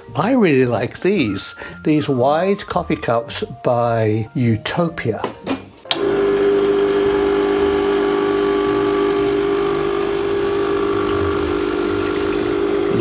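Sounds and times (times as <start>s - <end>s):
espresso machine pump buzzing: 5.9s - 13.0s.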